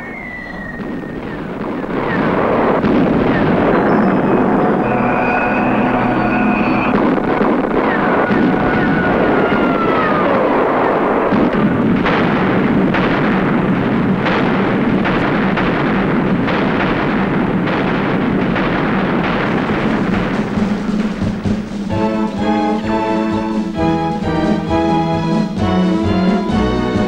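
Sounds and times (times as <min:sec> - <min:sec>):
whistles falling in pitch: 0:00.0 - 0:02.3, 0:03.3 - 0:10.3
continuous battle din: 0:00.0 - 0:27.0
explosions: 0:00.0 - 0:27.0.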